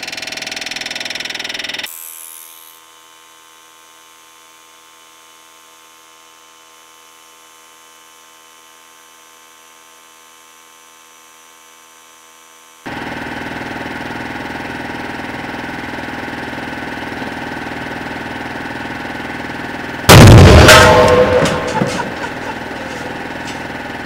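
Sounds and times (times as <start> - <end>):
machine hum with whine: 8.2 - 24.0.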